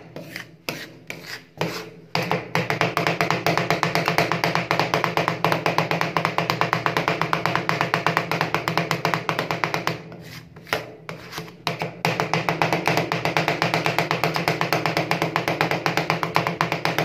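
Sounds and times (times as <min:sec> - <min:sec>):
spatula scraping and spreading: 0:00.0 - 0:02.4, 0:09.5 - 0:11.9
metal spatulas chopping on steel: 0:00.0 - 0:17.0.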